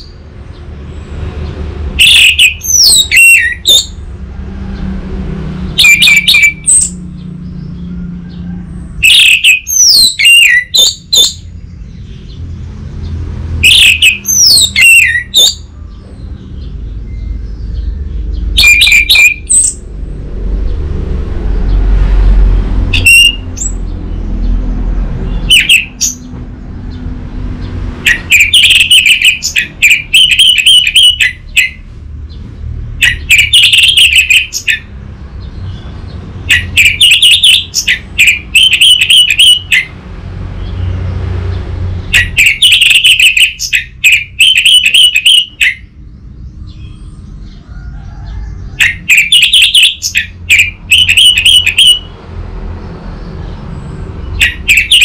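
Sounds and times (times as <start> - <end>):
thrush singing whistled phrases: 2.0 - 4.0, 5.7 - 7.0, 9.0 - 11.5, 13.6 - 15.7, 17.1 - 19.8, 22.9 - 23.8, 25.3 - 26.3, 28.0 - 31.8, 33.0 - 34.9, 36.5 - 39.9, 42.1 - 45.9, 48.8 - 52.1, 54.2 - 55.0.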